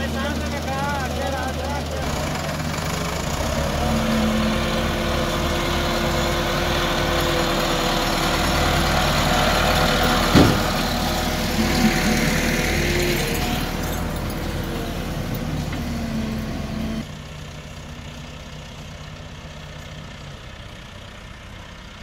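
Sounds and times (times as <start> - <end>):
tractor diesel engine running: 0.0 - 22.0
sharp knock: 10.3 - 10.8.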